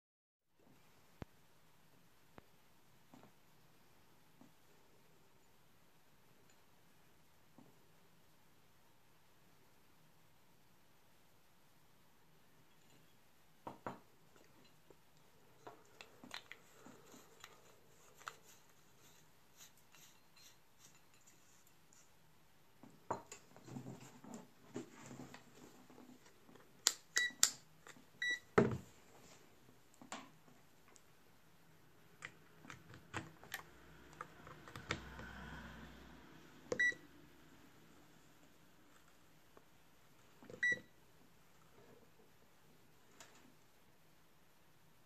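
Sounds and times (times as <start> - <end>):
multimeter short high beeps: 36.7 - 37.0.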